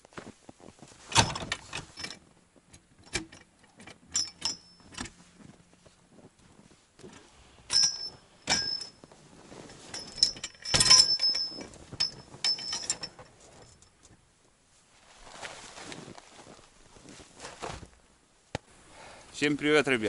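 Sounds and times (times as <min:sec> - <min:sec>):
sharp metallic clicks and clinks: 0:01.2 - 0:05.2, 0:07.7 - 0:09.0, 0:09.9 - 0:14.0.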